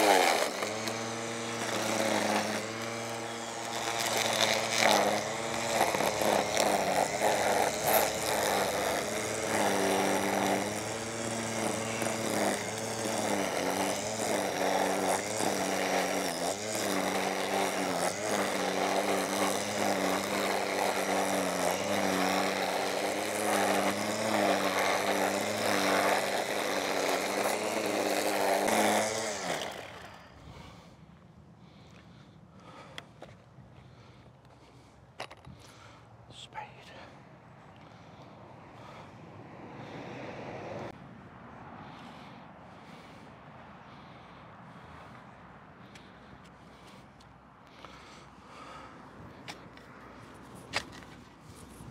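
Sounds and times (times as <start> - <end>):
small petrol engine running: 0.0 - 30.8.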